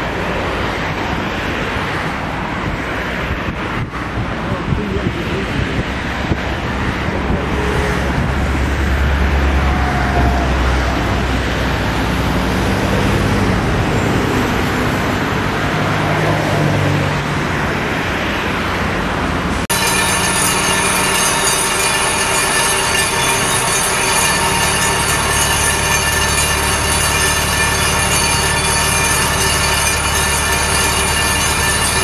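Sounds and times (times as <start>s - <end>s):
heavy construction machinery rumbling: 0.0s - 32.0s
pile hammer machinery droning hum: 19.7s - 32.0s.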